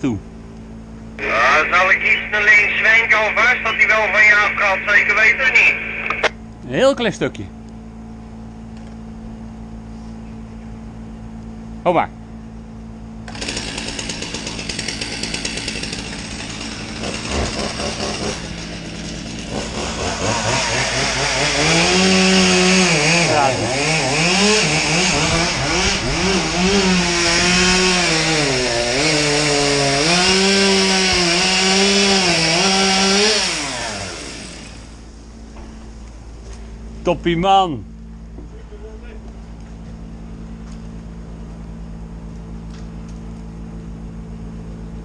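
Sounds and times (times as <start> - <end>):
chainsaw cutting wood: 13.2 - 35.1.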